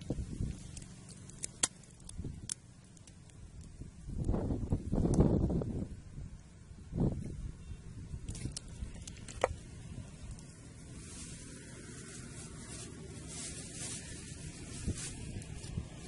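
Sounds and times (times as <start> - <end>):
plastic bag crinkling: 10.2 - 16.0.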